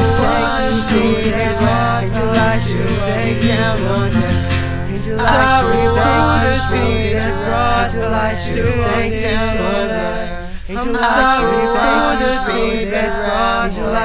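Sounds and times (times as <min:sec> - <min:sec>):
low bass note: 0:00.0 - 0:10.1
wordless voices singing in harmony: 0:00.0 - 0:14.0.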